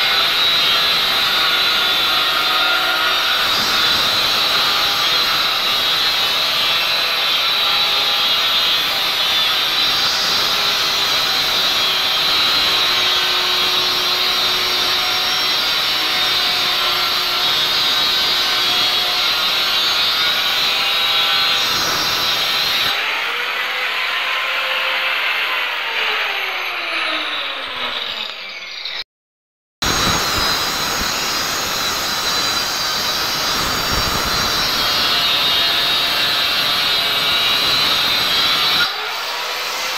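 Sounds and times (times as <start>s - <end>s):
angle grinder cutting wall: 0.0s - 29.0s, 29.8s - 39.9s.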